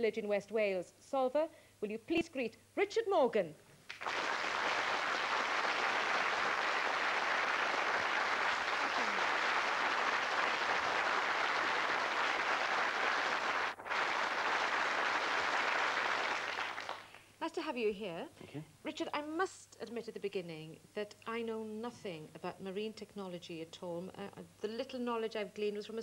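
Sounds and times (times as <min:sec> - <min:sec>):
studio audience applauding: 0:03.9 - 0:17.3.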